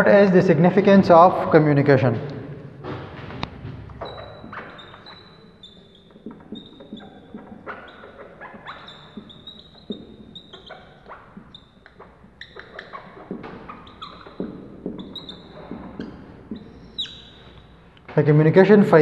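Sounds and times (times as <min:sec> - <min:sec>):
marker squeaking on whiteboard: 0:03.4 - 0:18.1.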